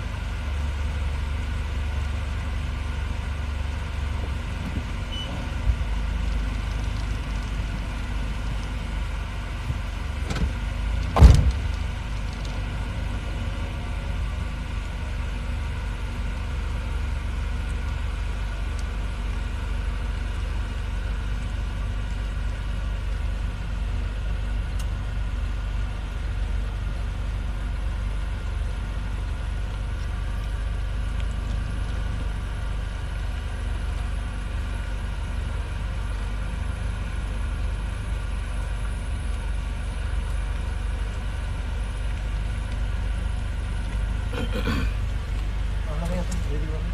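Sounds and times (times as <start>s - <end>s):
car driving slowly: 0.0s - 46.9s.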